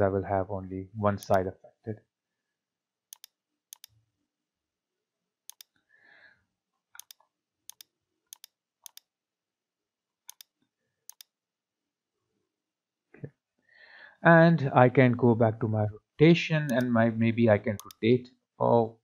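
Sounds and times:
computer mouse clicking: 3.1s - 3.9s, 5.5s - 5.8s, 7.0s - 9.1s, 10.3s - 11.3s, 16.7s - 16.9s, 17.8s - 18.0s.

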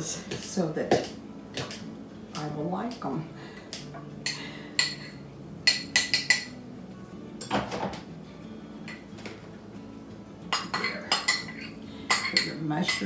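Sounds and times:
utensil clinking ceramic bowl: 10.5s - 13.0s.

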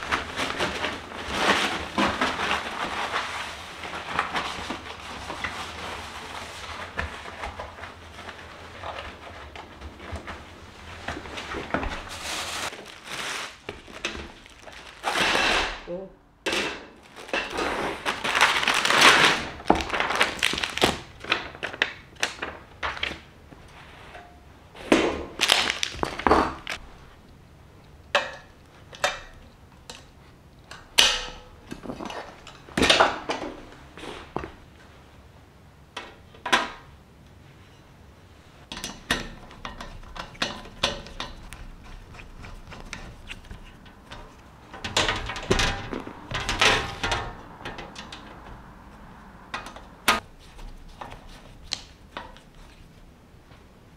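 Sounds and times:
plastic packaging crinkling: 11.3s - 15.3s, 17.0s - 23.2s, 25.4s - 27.0s.

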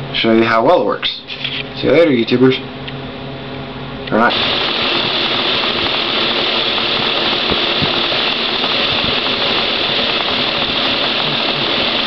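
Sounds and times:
small electric motor whirring: 4.3s - 12.0s.

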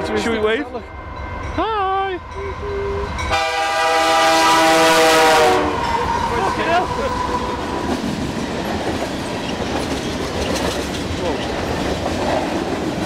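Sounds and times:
freight train rumbling on rails: 0.0s - 13.0s.

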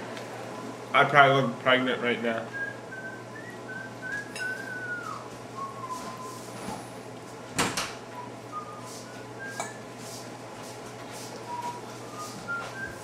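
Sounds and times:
low steady hum: 0.0s - 13.0s
person whistling: 2.6s - 6.5s, 8.2s - 9.9s, 11.5s - 13.0s.

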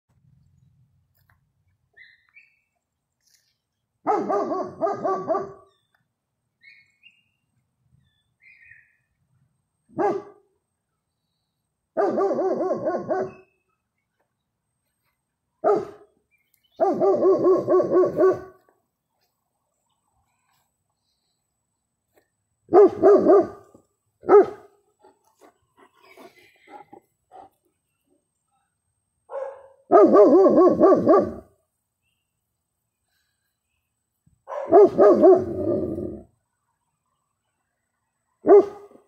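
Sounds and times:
dogs barking: 4.1s - 5.7s, 9.9s - 10.4s, 12.0s - 13.4s, 15.6s - 16.0s, 16.8s - 18.6s, 22.7s - 24.7s, 29.3s - 31.5s, 34.5s - 36.2s, 38.4s - 39.0s.

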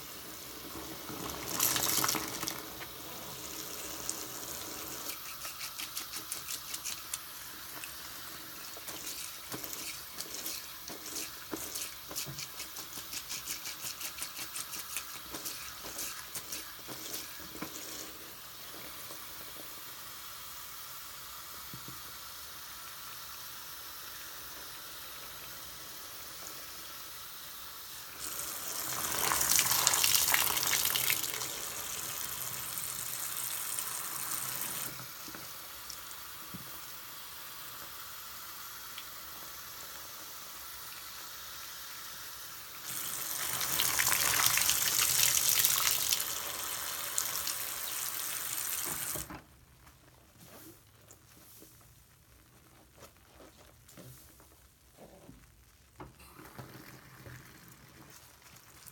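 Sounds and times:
faucet water running: 0.0s - 49.3s, 56.2s - 58.9s
soapy sponge squelching: 0.3s - 18.2s, 49.8s - 55.6s, 56.2s - 58.9s.

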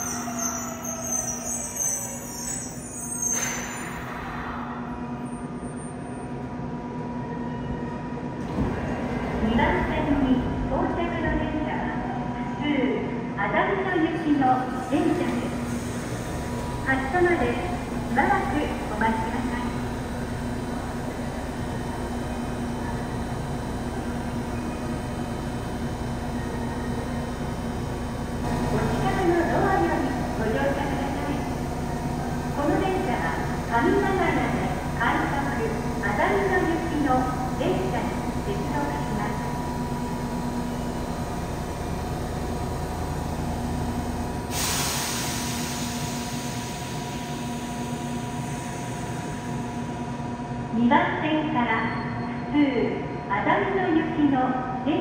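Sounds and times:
subway train equipment humming: 0.0s - 55.0s
loud air hiss: 44.5s - 47.4s.

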